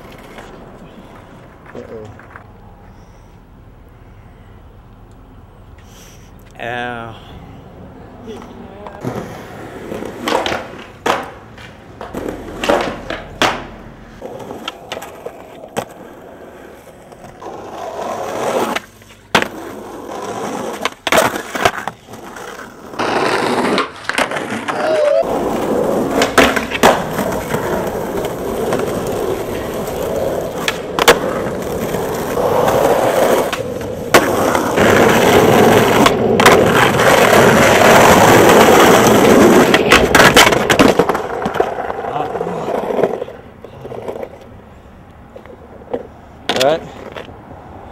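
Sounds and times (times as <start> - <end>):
skateboards rolling on concrete: 0.0 - 47.9
skateboard pops and landings: 9.9 - 11.4, 12.0 - 16.1, 17.2 - 41.9.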